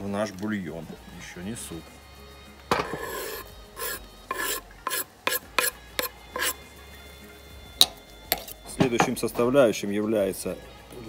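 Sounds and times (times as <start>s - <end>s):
knife scraping a wooden board: 2.7s - 6.6s, 8.3s - 8.6s.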